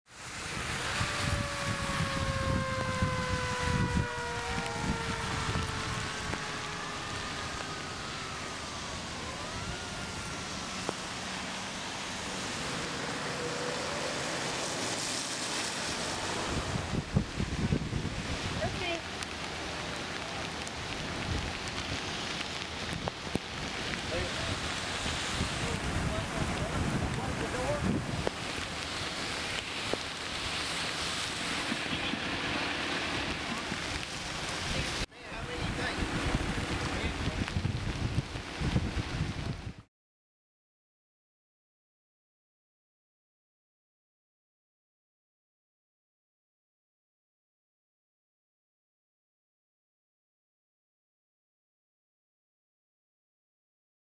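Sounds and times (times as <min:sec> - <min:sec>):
heavy rain hissing: 0:00.1 - 0:39.7
floodwater rushing: 0:00.1 - 0:39.8
vehicles passing on wet road: 0:00.1 - 0:39.8.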